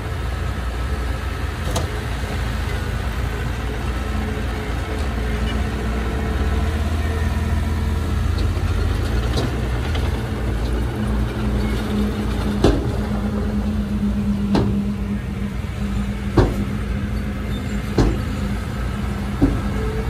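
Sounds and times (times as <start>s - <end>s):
diesel engine running: 0.0s - 20.0s
sharp knocks: 16.3s - 16.8s, 17.9s - 18.3s.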